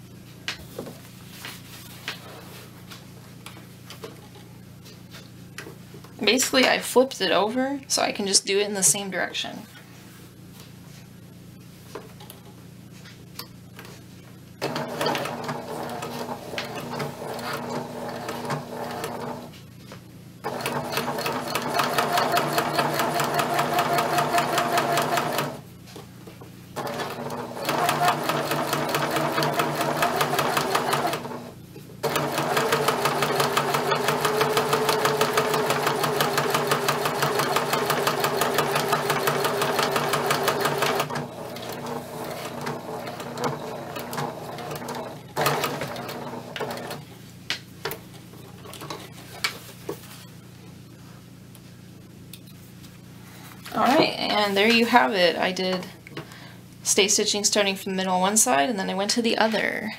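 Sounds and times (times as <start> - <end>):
sewing machine stitching: 14.6 - 19.5, 20.4 - 25.6, 26.8 - 47.0.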